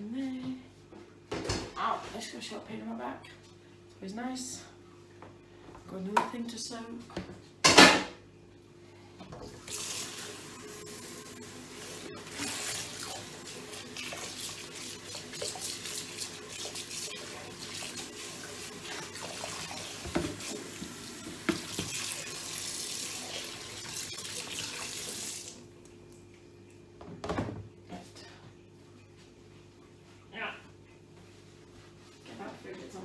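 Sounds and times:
tap water splashing on dishes: 12.3 - 27.5.

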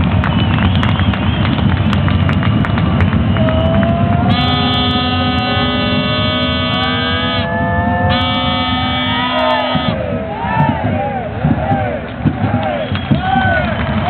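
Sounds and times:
arena crowd din: 0.0 - 14.0
horn blasts: 3.4 - 10.2.

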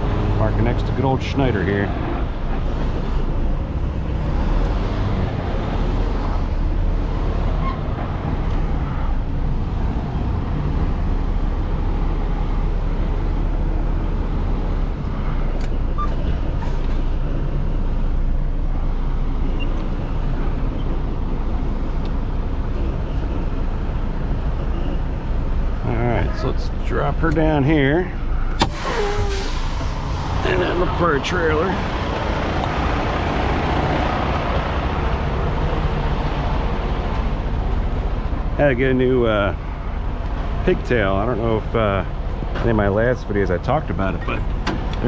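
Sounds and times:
diesel truck engine running: 0.0 - 45.0.

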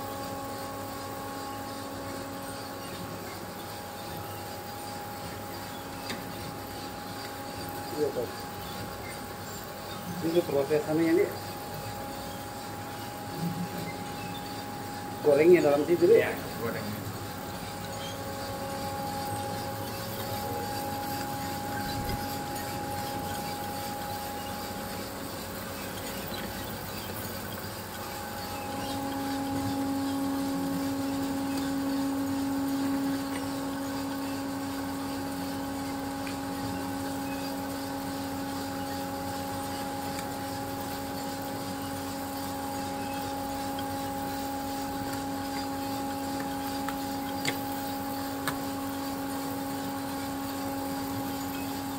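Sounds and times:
coffee roasting machine running: 0.0 - 51.9.

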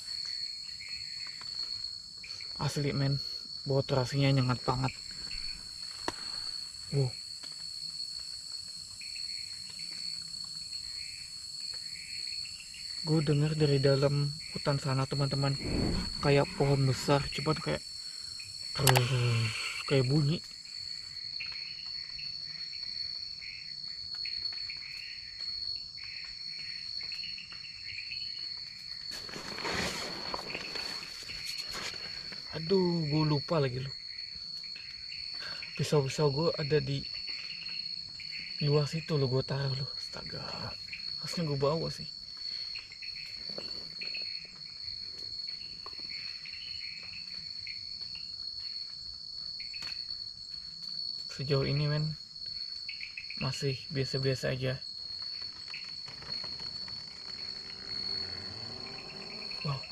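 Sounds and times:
high-pitched insect drone: 0.0 - 8.1, 8.9 - 59.9
wavering insect calls: 0.0 - 59.9
faint ticks: 18.8 - 19.4.

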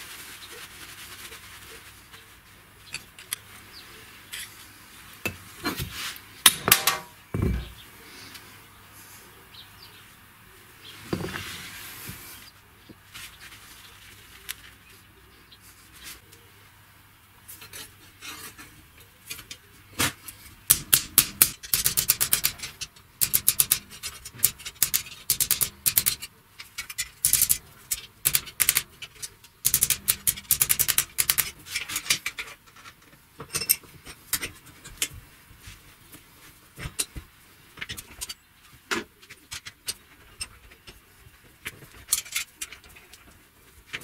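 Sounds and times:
metal hinge parts clinking: 6.5 - 7.8, 20.7 - 35.1
sharp metallic clicks: 20.7 - 29.0, 29.6 - 31.6.

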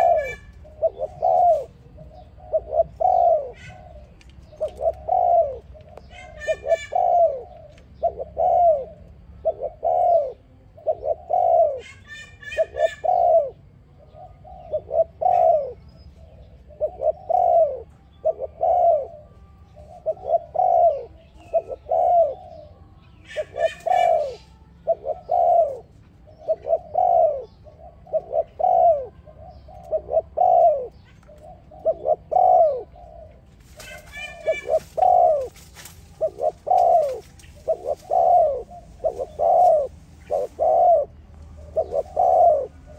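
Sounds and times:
dove cooing: 0.0 - 42.9.

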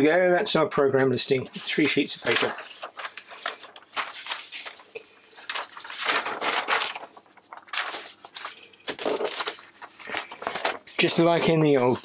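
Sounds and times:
printer paper rustling: 1.2 - 12.0.

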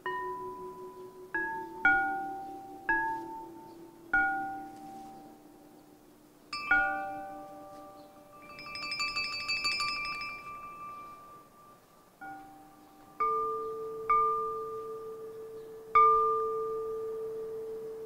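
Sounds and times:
porcelain percussion notes ringing: 0.0 - 5.7, 6.5 - 18.0
low steady tone: 0.0 - 18.0
shimmering jingle of porcelain pieces: 6.5 - 12.4.

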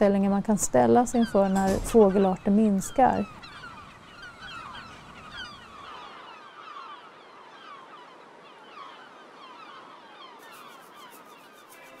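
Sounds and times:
gull colony calling: 1.1 - 9.2.

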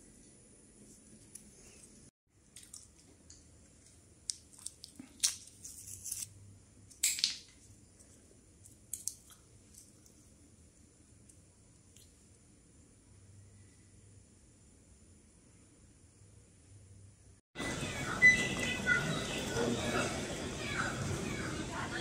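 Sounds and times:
nut shell cracking and snapping: 4.2 - 6.3, 6.9 - 7.6, 8.6 - 9.9.

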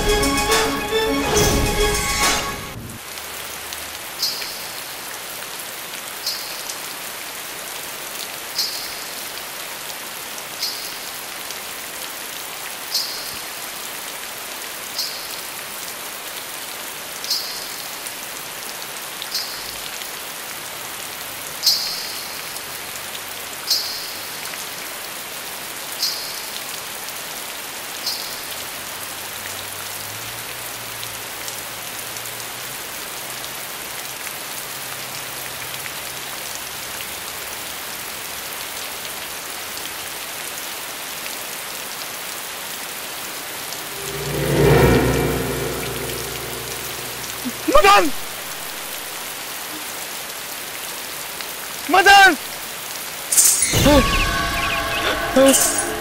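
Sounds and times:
steady rain falling: 0.0 - 43.9, 47.1 - 55.8
ankle bells jingling: 53.3 - 56.0.

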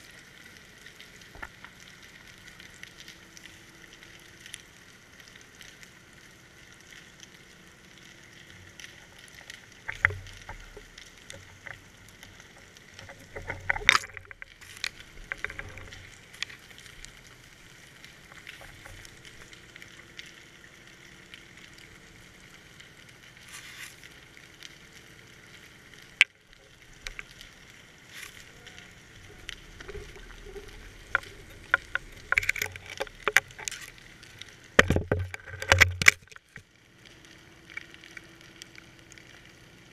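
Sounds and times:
faint underwater hiss: 0.0 - 34.9
camera rig clicks and knocks: 34.8 - 36.4.

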